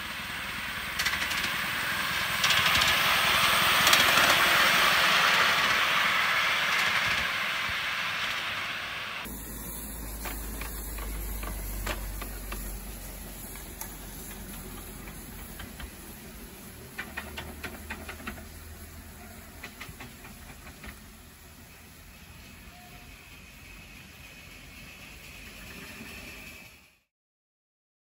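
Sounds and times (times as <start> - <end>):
steam hissing: 0.0 - 27.1
sharp clicks of model locomotive: 0.8 - 8.5, 10.2 - 18.9, 19.5 - 21.2.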